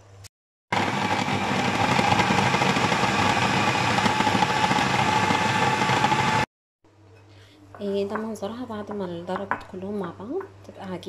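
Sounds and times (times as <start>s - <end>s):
food processor motor whirring: 0.7s - 6.5s.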